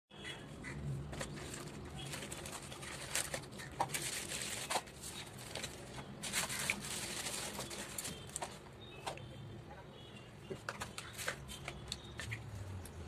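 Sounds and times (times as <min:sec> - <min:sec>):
plastic packaging crinkling: 0:01.2 - 0:08.7.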